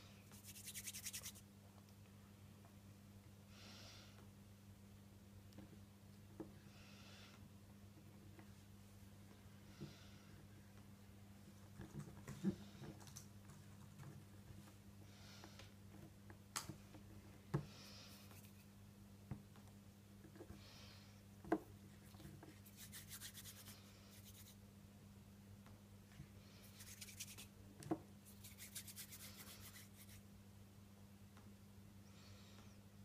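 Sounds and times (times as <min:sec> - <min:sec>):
low electrical hum: 0:00.0 - 0:33.0
hands rubbing modelling dough: 0:00.3 - 0:01.5, 0:17.8 - 0:18.8, 0:21.8 - 0:24.6, 0:26.6 - 0:27.6, 0:28.2 - 0:30.3.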